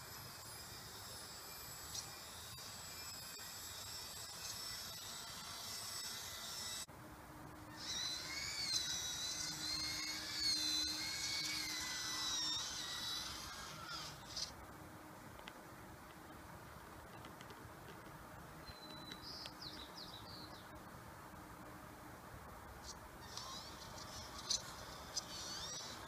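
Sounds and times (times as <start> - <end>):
small electric motor whining: 0.0 - 6.9, 7.6 - 14.6, 23.2 - 26.0.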